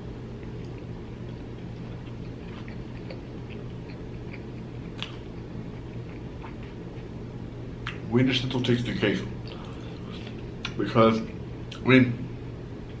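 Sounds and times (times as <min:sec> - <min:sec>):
low hum: 0:00.0 - 0:13.0
chewing mouth clicks and smacks: 0:00.4 - 0:07.1.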